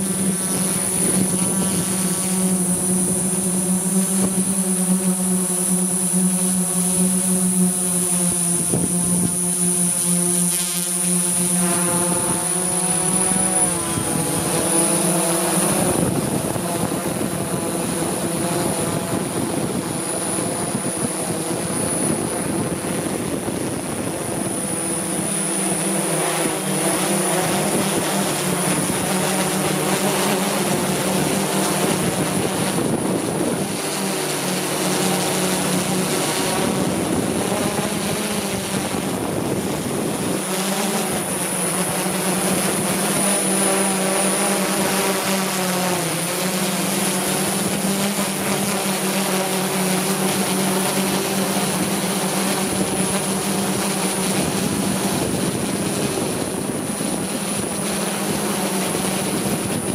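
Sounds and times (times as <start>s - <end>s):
helicopter rotors droning: 0.0s - 59.9s.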